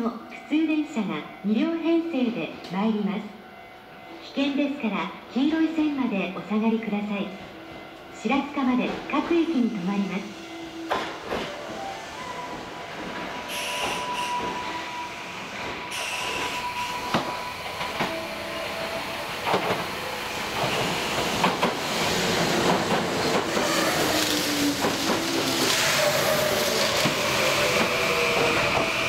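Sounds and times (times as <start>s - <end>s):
train wheels clicking over rail joints: 19.3s - 29.0s.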